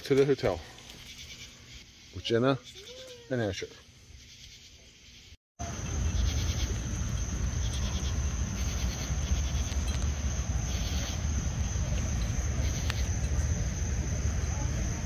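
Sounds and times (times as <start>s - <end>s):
high insect drone: 0.5s - 15.0s
low microphone rumble: 5.7s - 15.0s.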